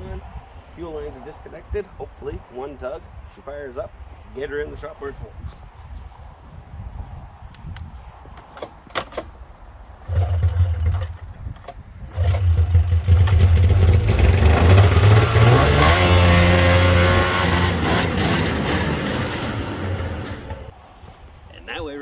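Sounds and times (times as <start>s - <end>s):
snowmobile engine running and revving: 12.2s - 20.7s.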